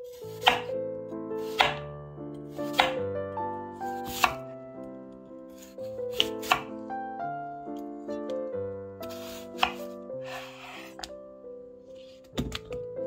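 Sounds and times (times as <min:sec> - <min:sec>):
soft piano music: 0:00.0 - 0:13.0
knife chopping on cutting board: 0:00.2 - 0:00.7, 0:01.4 - 0:01.8, 0:02.6 - 0:03.0, 0:04.0 - 0:04.4, 0:05.6 - 0:06.7, 0:09.1 - 0:09.9.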